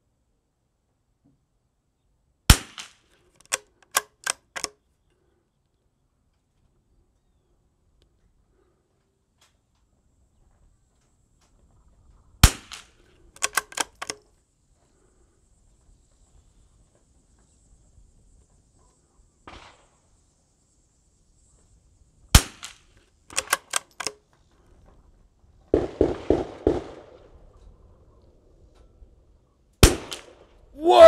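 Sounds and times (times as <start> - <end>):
rifle bolt clicks: 2.8 - 4.8, 12.7 - 14.2, 23.3 - 24.2
rifle shots: 25.7 - 27.3, 29.8 - 30.4.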